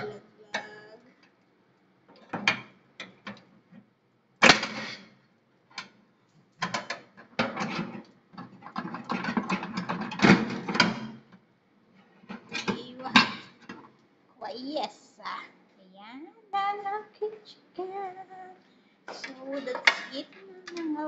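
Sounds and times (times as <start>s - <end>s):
metal racks clattering in oven: 6.6s - 11.2s.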